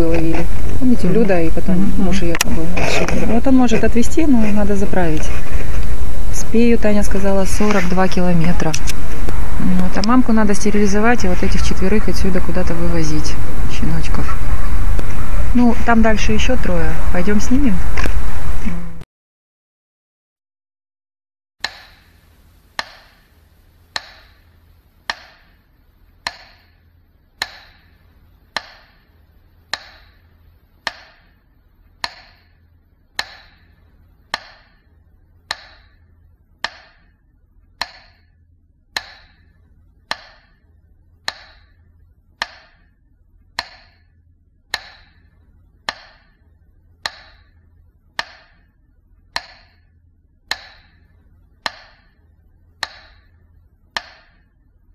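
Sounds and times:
faint low hum: 0:00.0 - 0:19.0, 0:21.7 - 0:54.9
sharp ringing knocks: 0:21.6 - 0:22.2, 0:22.8 - 0:23.3, 0:24.0 - 0:24.4, 0:25.1 - 0:25.6, 0:26.2 - 0:26.8, 0:27.4 - 0:28.0, 0:28.6 - 0:29.0, 0:29.7 - 0:30.2, 0:30.8 - 0:31.4, 0:32.0 - 0:32.6, 0:33.2 - 0:33.7, 0:34.3 - 0:34.9, 0:35.5 - 0:36.0, 0:36.6 - 0:37.2, 0:37.8 - 0:38.4, 0:39.0 - 0:40.6, 0:41.3 - 0:41.8, 0:42.4 - 0:42.9, 0:43.6 - 0:46.4, 0:47.0 - 0:47.6, 0:48.2 - 0:48.8, 0:49.4 - 0:52.2, 0:52.8 - 0:53.4, 0:54.0 - 0:54.5.

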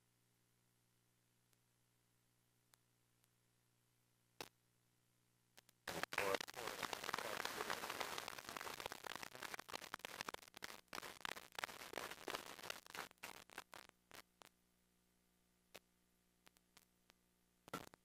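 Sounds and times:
voices: 0:05.9 - 0:08.9
audience applause: 0:05.9 - 0:09.3.

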